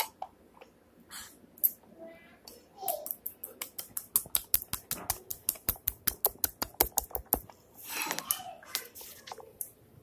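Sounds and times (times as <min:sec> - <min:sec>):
fingers tapping on phone: 0:03.4 - 0:07.6.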